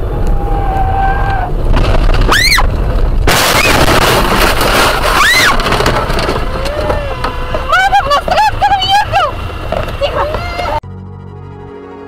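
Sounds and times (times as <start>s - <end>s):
road noise: 0.0s - 10.8s
metal crunching: 1.5s - 10.8s
car crash impact: 1.6s - 8.5s
windscreen shattering: 1.6s - 10.4s
tyre squeal: 4.9s - 10.8s.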